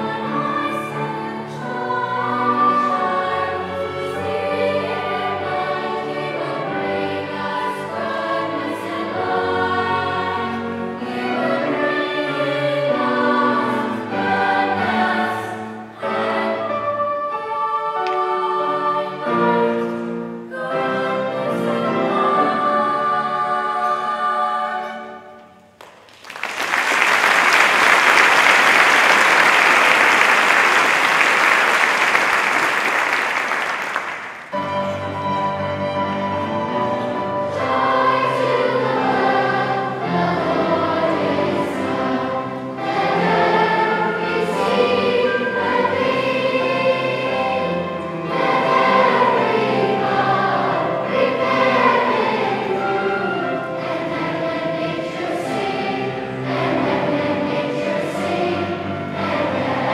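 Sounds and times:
choir singing with piano: 0.0 - 25.8, 26.7 - 59.9
audience clapping: 25.8 - 34.6.

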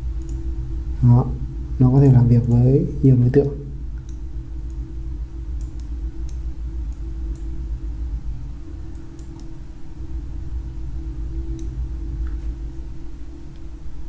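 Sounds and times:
low electrical hum: 0.0 - 14.0
computer mouse clicks: 0.2 - 0.4, 4.0 - 4.8, 5.6 - 7.5, 8.9 - 9.6.

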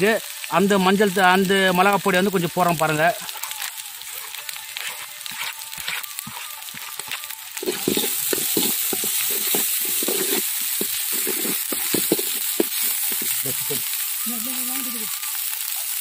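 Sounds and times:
masala sizzling in oil: 0.0 - 16.0
metal ladle scraping a wok: 4.1 - 13.5.

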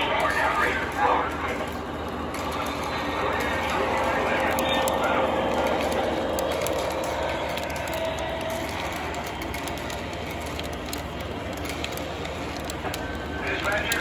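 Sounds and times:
model train rumbling on track: 0.0 - 14.0.

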